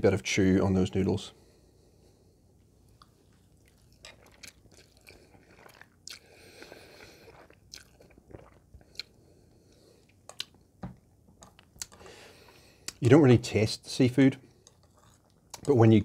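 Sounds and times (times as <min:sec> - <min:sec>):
person chewing noodles: 0:02.8 - 0:10.7, 0:11.4 - 0:13.0, 0:14.5 - 0:15.6.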